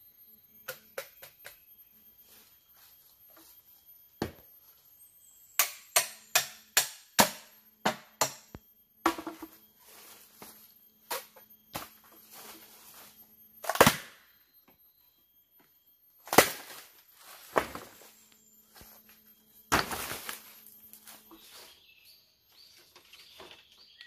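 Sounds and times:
chopping strikes on bamboo: 5.6s - 8.5s, 9.1s - 9.5s, 13.6s - 14.2s, 16.3s - 16.8s.

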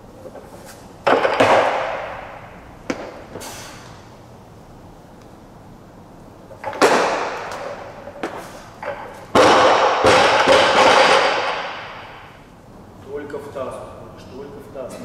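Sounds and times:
barbell thudding on platform: 1.0s - 3.2s.

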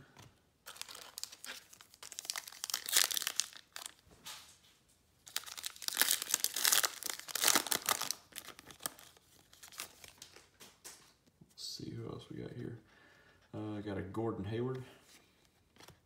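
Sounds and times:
foil tearing: 0.7s - 4.0s, 5.3s - 9.0s
foil wrapper crinkling: 0.7s - 4.0s, 5.2s - 10.6s.

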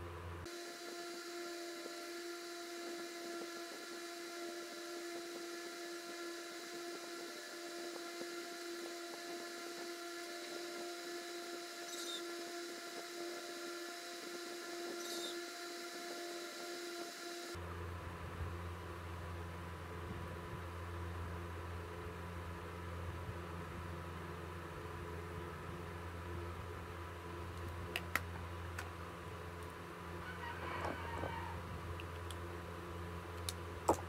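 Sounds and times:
steady motor hum: 0.0s - 34.0s.

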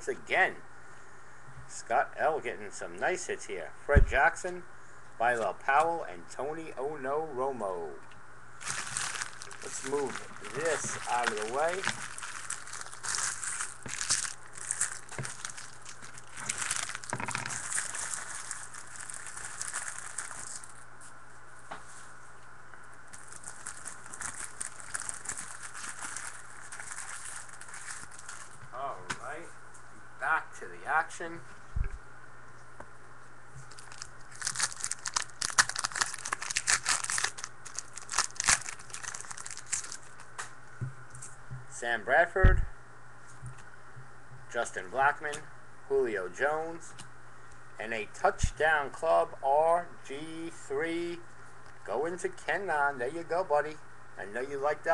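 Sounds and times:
card pack wrappers crinkling: 8.6s - 20.8s, 23.1s - 28.6s, 33.6s - 40.4s.

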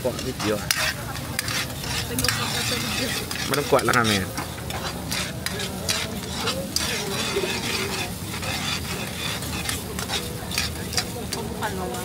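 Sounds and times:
metal ladle scraping a wok: 0.0s - 12.0s
sauce sizzling in oil: 0.0s - 12.0s.

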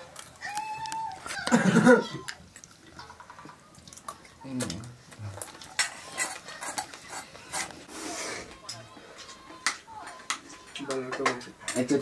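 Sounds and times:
metal spoon scraping bowl: 5.7s - 8.5s.

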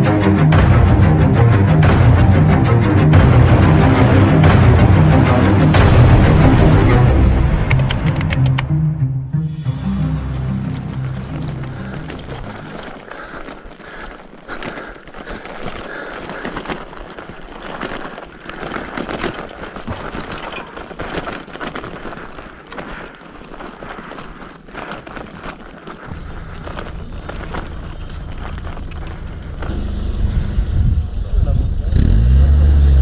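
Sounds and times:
bicycle tyres on rough road: 0.0s - 8.6s, 9.5s - 33.0s
low steady rumble: 26.1s - 33.0s.

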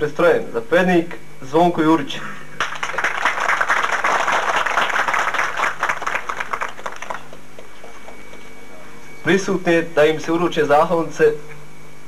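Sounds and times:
crowd applauding: 2.6s - 8.4s.

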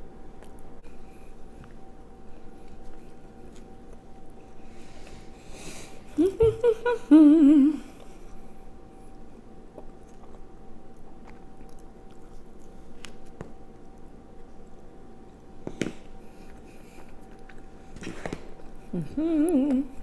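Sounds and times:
chewing and mouth sounds: 0.3s - 4.6s, 9.6s - 20.0s
woman humming: 6.1s - 7.9s, 18.9s - 20.0s.

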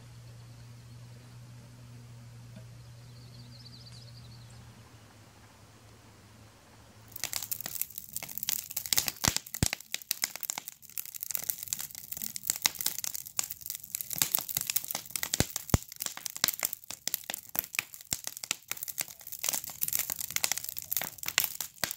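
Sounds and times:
campfire crackling: 4.6s - 21.9s.

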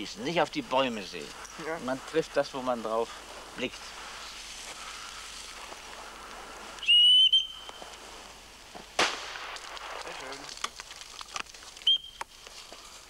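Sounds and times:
signal whistle blast: 6.8s - 7.8s, 11.8s - 12.2s
shotgun shot: 9.0s - 10.4s.

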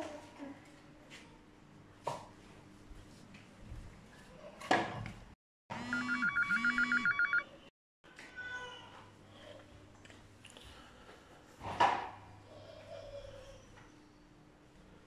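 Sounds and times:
electronic phone ringtone: 5.8s - 7.5s.

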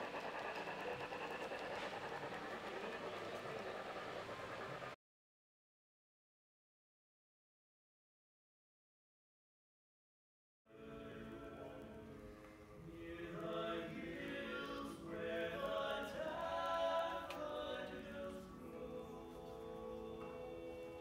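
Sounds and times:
a cappella group singing: 10.7s - 12.2s, 12.8s - 21.0s.

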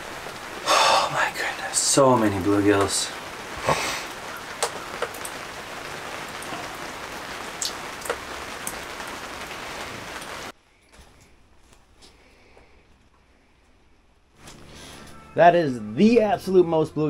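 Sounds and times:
rain on fabric roof: 0.0s - 11.8s.

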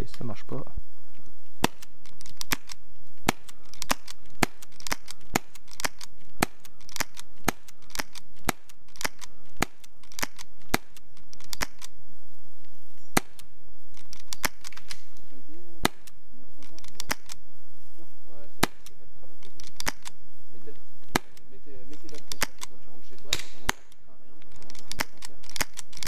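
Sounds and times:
suppressed airsoft pistol shots: 1.6s - 11.9s, 15.8s - 16.2s, 18.6s - 19.0s, 21.0s - 21.5s.

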